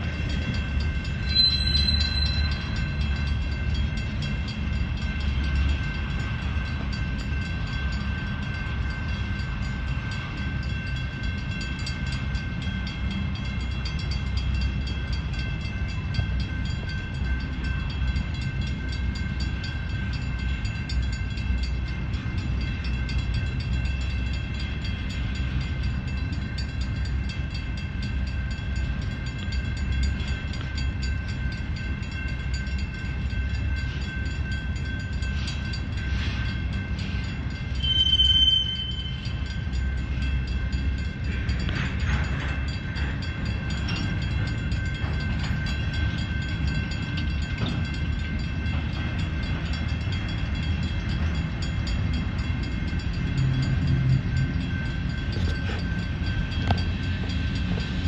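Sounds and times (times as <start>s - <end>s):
steady high tones: 0.0s - 58.0s
train cars rumbling past: 0.0s - 58.0s
high squeal: 1.2s - 2.9s, 37.8s - 39.2s.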